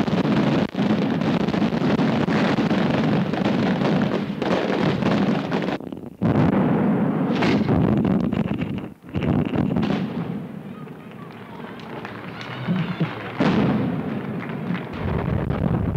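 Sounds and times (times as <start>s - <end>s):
firecracker bangs and crackling: 0.0s - 15.9s.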